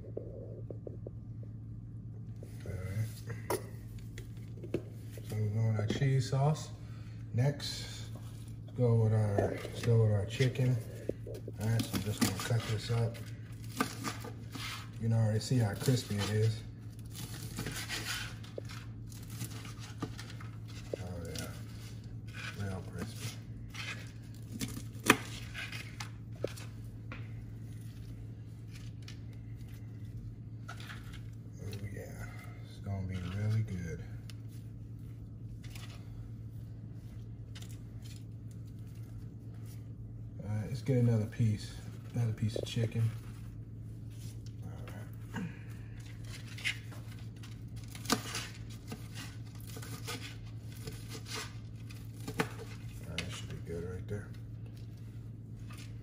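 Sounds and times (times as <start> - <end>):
low steady hum: 0.0 - 56.0.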